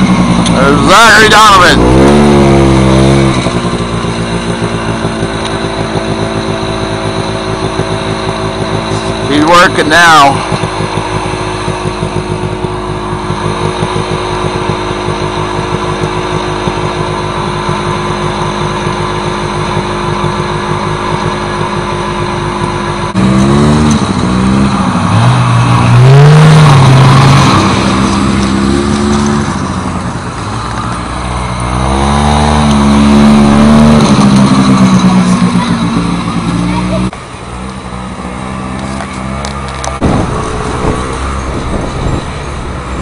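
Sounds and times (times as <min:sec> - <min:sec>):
snowmobile engine idling: 0:00.0 - 0:43.0
snowmobile engines revving: 0:00.0 - 0:43.0.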